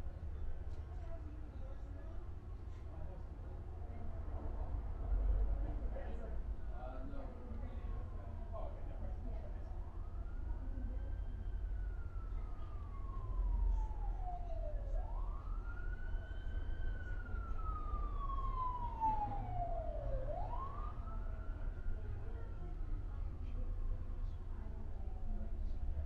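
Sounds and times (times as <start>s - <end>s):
low steady hum: 0.0s - 26.0s
siren wailing: 10.0s - 21.9s.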